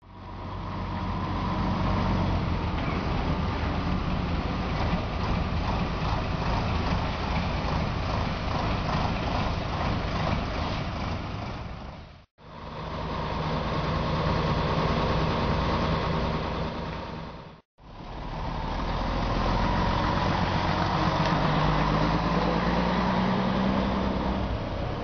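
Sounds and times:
diesel truck engine running: 0.0 - 25.0.

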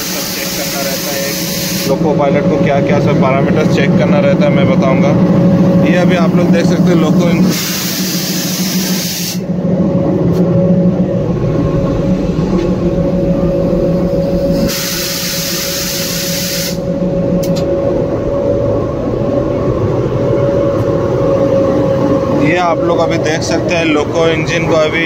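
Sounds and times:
air hiss: 0.0 - 2.0, 7.4 - 9.5, 14.5 - 16.9
locomotive idling drone: 0.0 - 25.0.

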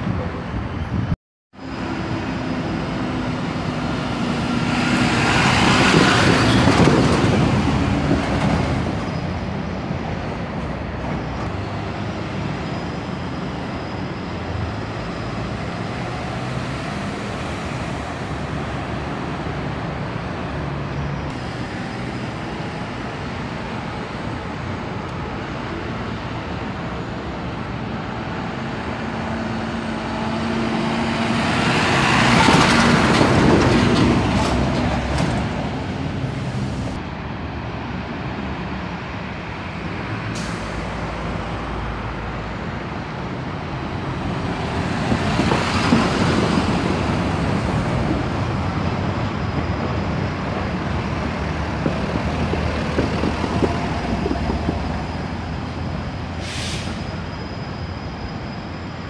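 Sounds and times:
buses driving past: 0.0 - 59.0.

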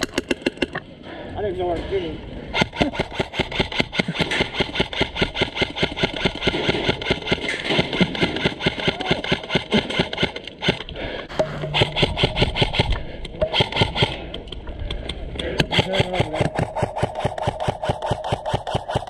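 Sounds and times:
airsoft rifles full-auto firing: 2.5 - 10.9, 11.8 - 14.2, 15.6 - 19.0.

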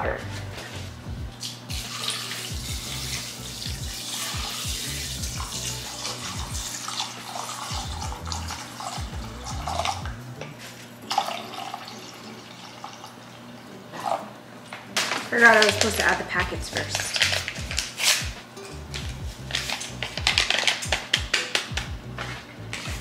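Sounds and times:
water pouring into a bowl: 1.4 - 10.0, 11.1 - 13.6.

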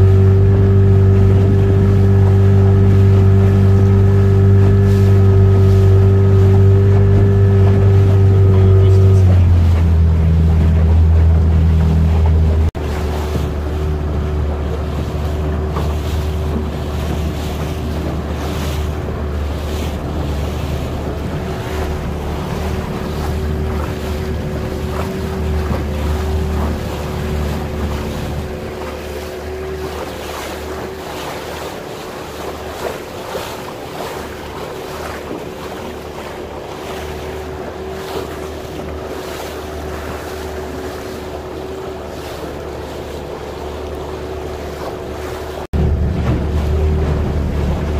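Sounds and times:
motorboat engine droning: 0.0 - 47.9
water rushing past: 0.0 - 47.9
wind buffeting microphone: 0.0 - 47.9.

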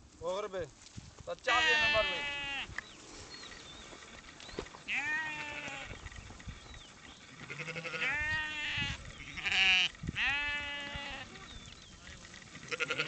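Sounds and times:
sheep bleating: 1.4 - 2.7, 4.9 - 6.1, 7.3 - 11.6, 12.5 - 13.0.

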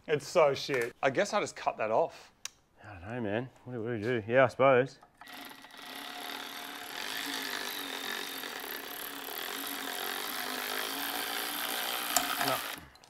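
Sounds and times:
electric ratchet motor whining: 5.2 - 13.0.

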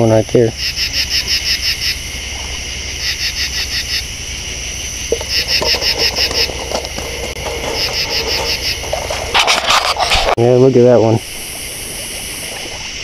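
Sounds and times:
insect pulsed trill: 0.0 - 10.2
high-pitched insect chorus: 0.0 - 13.0.

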